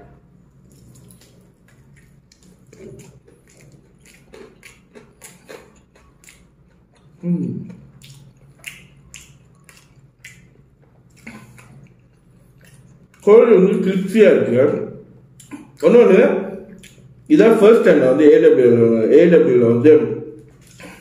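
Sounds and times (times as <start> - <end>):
crunchy chewing: 0.5 - 13.3.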